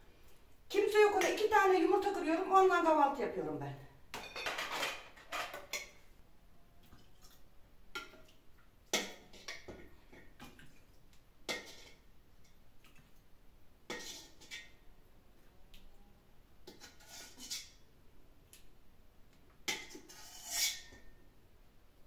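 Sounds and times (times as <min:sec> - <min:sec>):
kitchenware clinking and knocking: 0:04.1 - 0:06.0.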